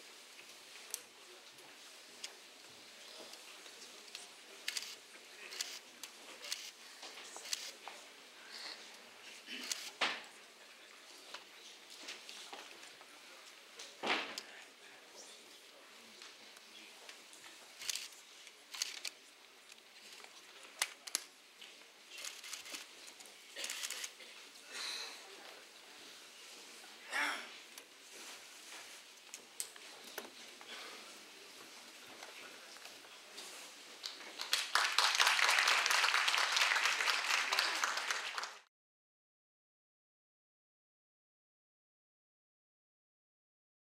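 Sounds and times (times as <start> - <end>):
faint rustles and scuffs: 27.6 - 34.1
audience applause: 34.0 - 38.7.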